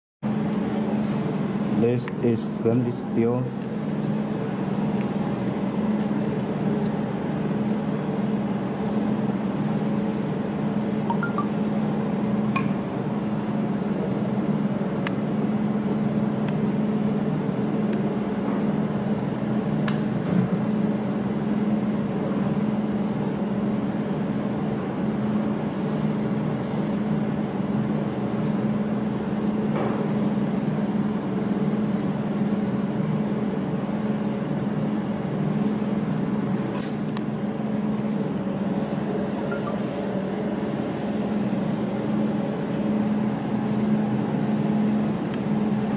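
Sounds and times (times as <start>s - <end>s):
machine humming: 38.6s - 42.6s.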